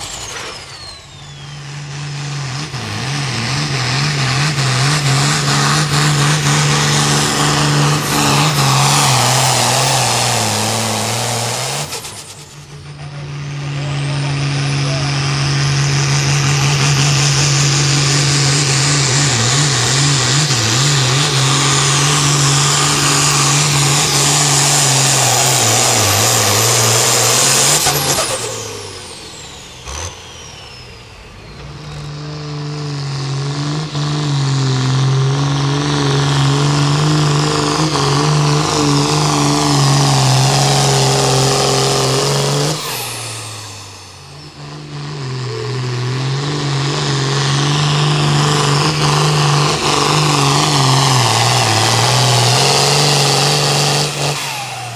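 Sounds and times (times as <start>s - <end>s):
high turbo whistle: 0.0s - 2.1s, 38.6s - 44.9s
tractor diesel engine drone: 0.0s - 54.9s.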